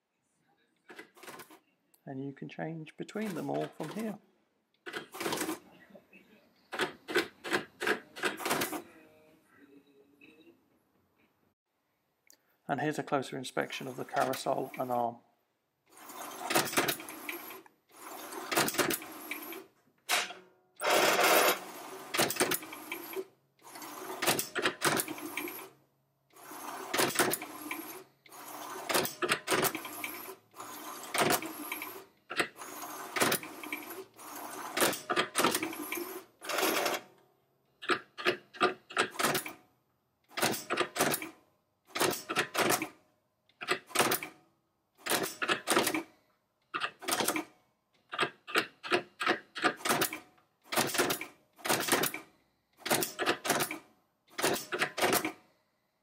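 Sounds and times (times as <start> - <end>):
pen plotter motor whirring: 26.4 - 37.0.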